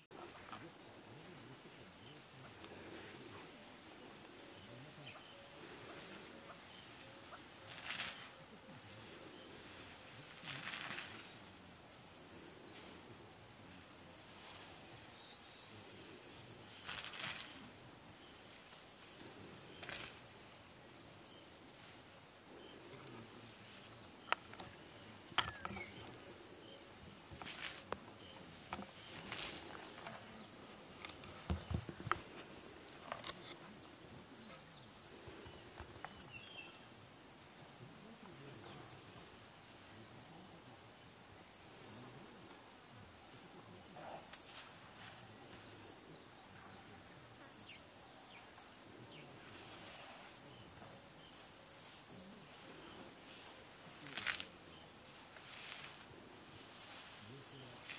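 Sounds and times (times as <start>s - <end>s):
leaves rustling: 0.0s - 37.0s, 48.4s - 57.9s
crickets and insects chirping: 0.0s - 57.9s
insect buzzes: 0.1s - 57.9s.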